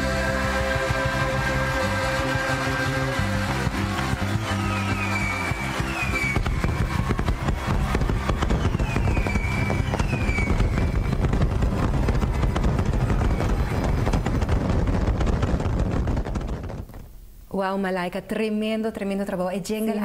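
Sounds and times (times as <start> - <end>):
fireworks crackling and banging: 0.0 - 17.3
falling firework whistles: 4.4 - 16.3.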